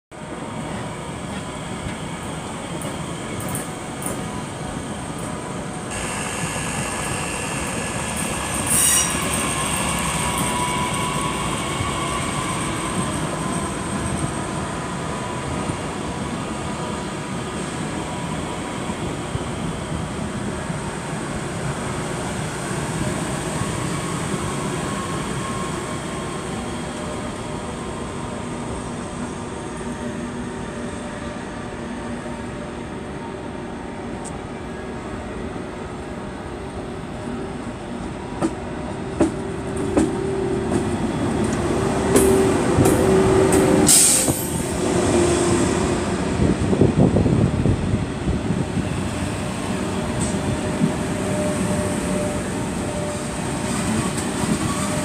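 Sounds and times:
train rolling slowly: 0.1s - 55.0s
electric train whine: 0.2s - 55.0s
train wheels squealing: 0.8s - 19.9s, 22.0s - 28.5s, 42.1s - 44.8s, 49.0s - 55.0s.

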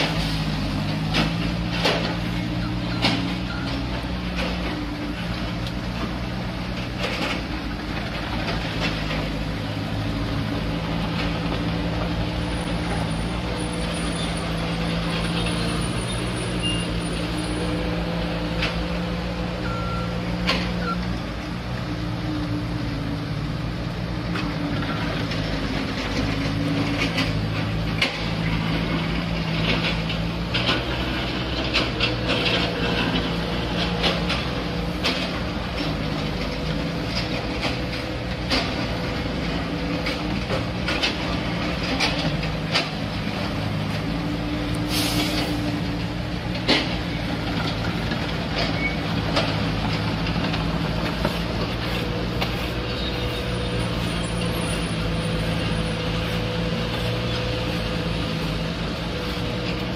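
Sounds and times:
diesel loader engine running: 0.0s - 59.9s
brief hiss: 44.8s - 45.6s.

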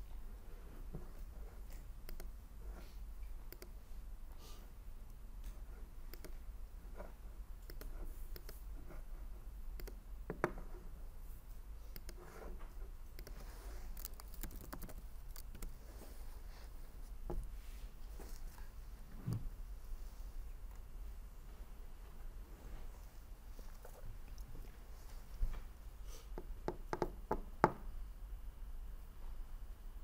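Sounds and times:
low steady hum: 0.0s - 30.0s
computer mouse clicks: 1.6s - 2.4s, 3.2s - 3.8s, 5.0s - 6.4s, 7.6s - 8.7s, 9.7s - 10.6s, 11.9s - 12.3s, 13.1s - 15.8s
keyboard typing: 1.7s - 2.4s, 3.5s - 3.8s, 6.1s - 6.4s, 7.6s - 8.6s, 9.7s - 10.7s, 11.9s - 12.3s, 13.1s - 15.8s.

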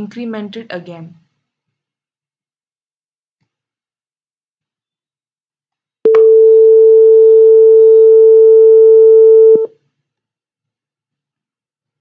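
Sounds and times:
steady buzzer beep: 6.1s - 9.7s.

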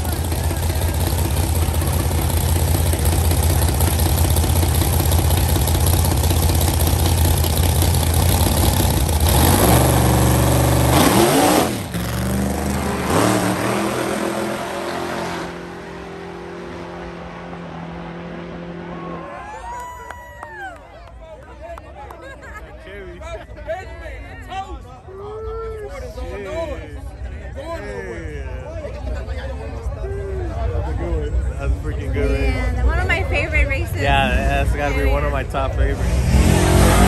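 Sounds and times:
vehicle engines revving: 0.0s - 19.5s, 31.3s - 37.0s.

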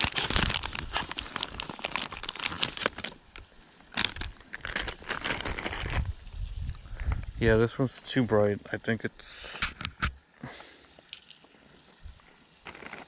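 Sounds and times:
plastic pouch crinkling: 0.0s - 6.2s, 12.6s - 13.0s.

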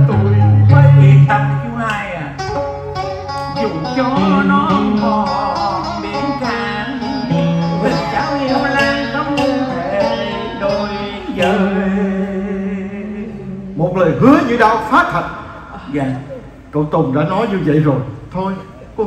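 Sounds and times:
plucked string accompaniment: 0.0s - 12.8s
person singing wavering melody: 3.5s - 13.9s.

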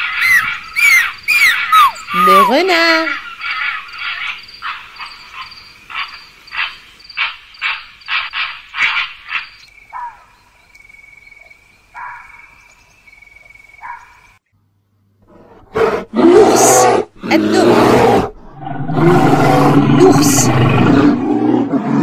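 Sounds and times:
bear roaring: 0.2s - 2.9s, 15.3s - 22.0s.

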